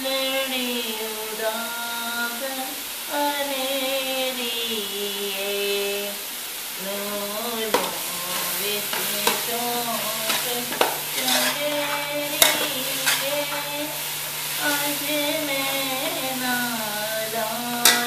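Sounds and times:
vegetables sizzling in a pot: 0.0 - 18.0
woman singing unaccompanied: 0.0 - 18.0
spoon stirring and scraping: 7.7 - 16.4, 17.8 - 18.0
spoon clinking on pot: 10.3 - 13.7, 17.8 - 18.0.

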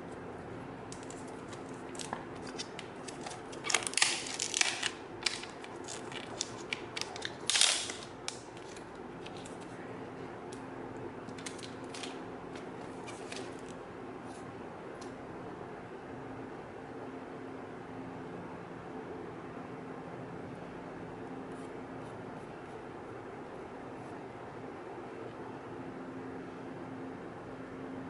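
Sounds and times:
plastic film crinkling: 0.9 - 9.7, 11.3 - 13.8.

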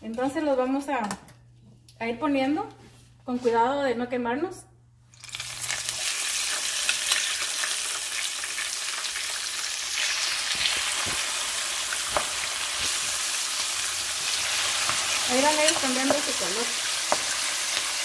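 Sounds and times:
oil crackles and pops: 5.1 - 18.0
shrimp sizzling in hot oil: 5.1 - 18.0.

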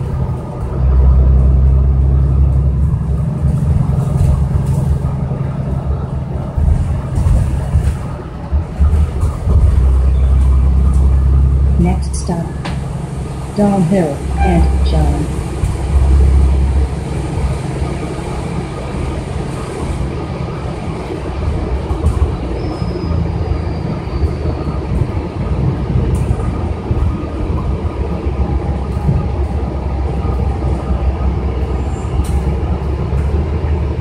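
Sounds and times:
bus rumbling on wet road: 0.0 - 34.0
interior clicks and rattles: 2.2 - 11.4.

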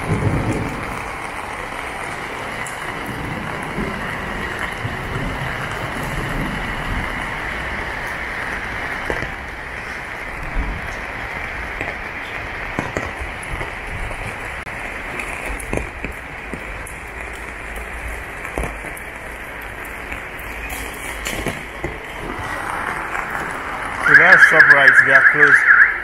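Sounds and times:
rain falling on roof and paving: 0.0 - 26.0.

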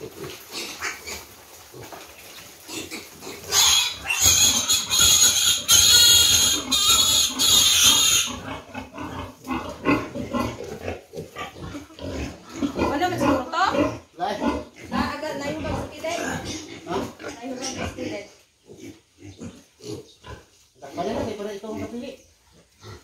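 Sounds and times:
piglet squealing: 3.5 - 8.6.

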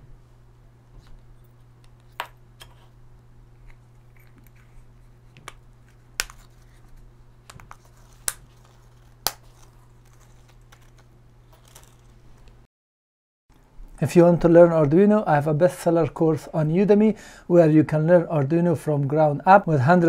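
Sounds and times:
steady low hum: 0.0 - 12.7.

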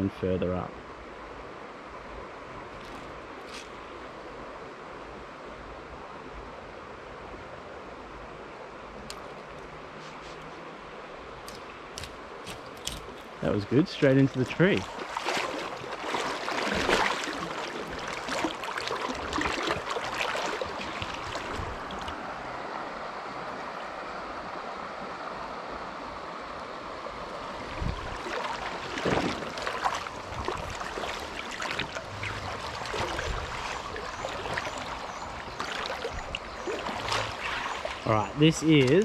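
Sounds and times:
stream water running over gravel: 2.7 - 4.1, 11.3 - 24.0, 26.7 - 39.0
legs wading through water: 11.3 - 23.4, 27.1 - 39.0.

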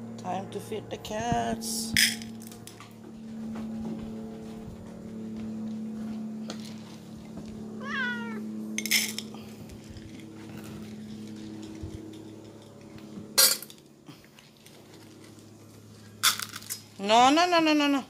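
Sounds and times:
steady low hum: 0.0 - 18.0
cat meowing: 7.8 - 8.4.

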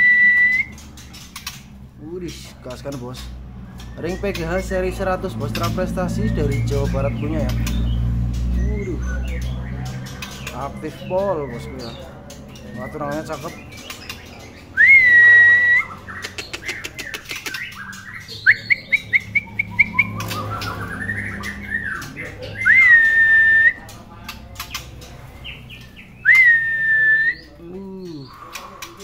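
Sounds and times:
bird whistling: 0.0 - 0.8, 12.7 - 23.9, 25.8 - 28.5
bird chirps: 0.0 - 29.0
bird clicks: 0.6 - 1.8, 7.4 - 8.5, 16.2 - 17.8, 18.9 - 22.2, 23.9 - 25.1.

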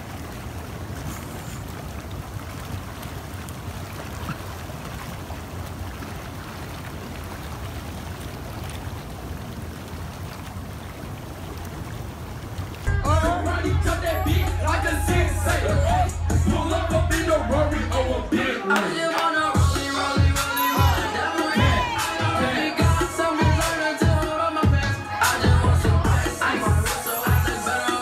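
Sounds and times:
hot tub water bubbling: 0.0 - 13.0.

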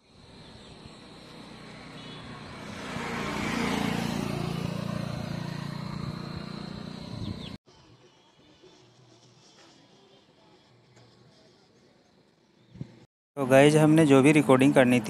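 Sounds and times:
vehicle driving past: 1.0 - 7.6.

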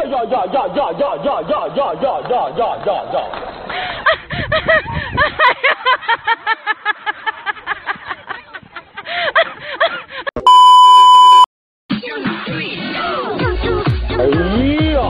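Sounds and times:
woman laughing: 3.9 - 10.3
loud electronic beep: 10.4 - 11.5.

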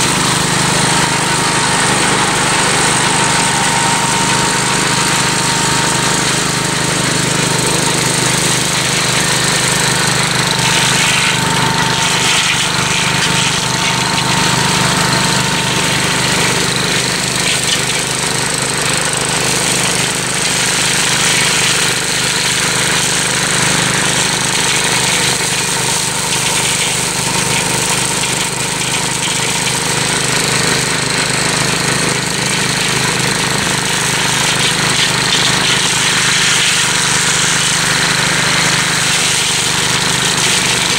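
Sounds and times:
tractor engine running under load: 0.0 - 40.9.

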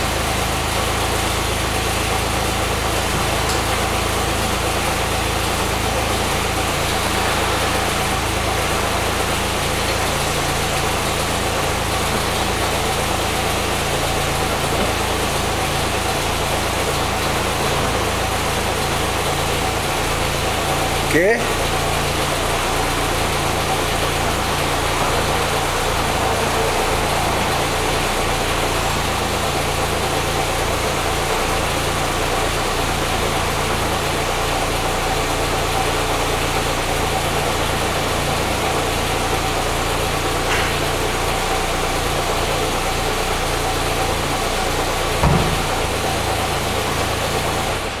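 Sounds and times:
car engine idling: 0.0 - 48.0
electric soft top whining: 2.8 - 20.9.

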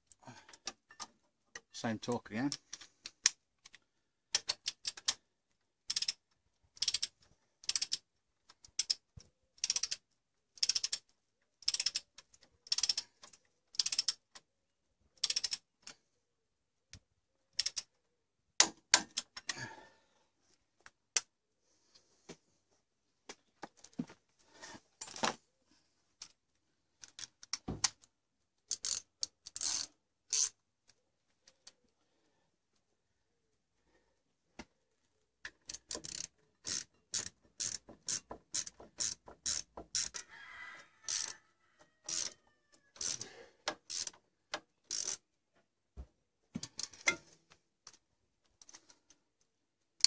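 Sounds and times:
socket ratchet clicking: 5.9 - 6.2, 6.8 - 8.0, 9.6 - 10.0, 10.6 - 11.0, 11.6 - 12.1, 12.7 - 13.0, 13.8 - 14.2, 15.2 - 15.6, 17.6 - 17.9, 35.6 - 40.2, 41.1 - 41.3, 42.1 - 42.4, 43.8 - 44.1, 44.9 - 45.2.

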